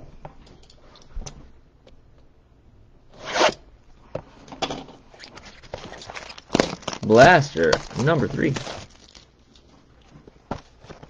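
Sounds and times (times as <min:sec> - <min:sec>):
scrapes and rustles: 0:05.1 - 0:11.0
cardboard box ripping: 0:05.8 - 0:09.2.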